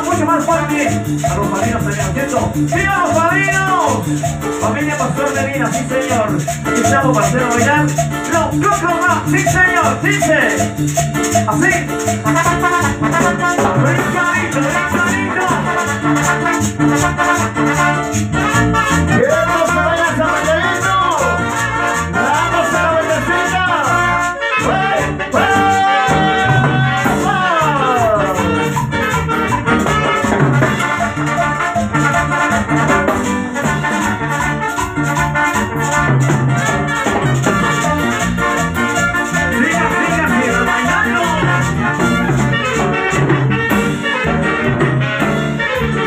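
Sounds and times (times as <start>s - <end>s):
bass line: 0.0s - 46.0s
hand shaker rhythm: 0.0s - 46.0s
percussion: 0.0s - 46.0s
horn section falls: 12.2s - 46.0s.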